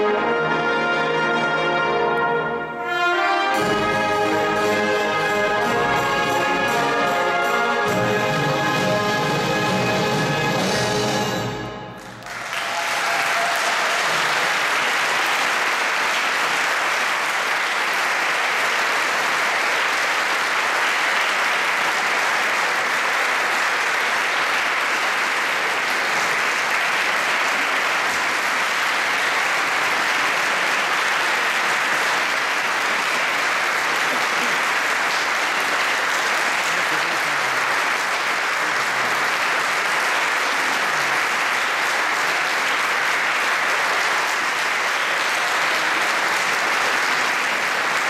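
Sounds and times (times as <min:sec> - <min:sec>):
audience applauding: 0:11.9 - 0:48.0.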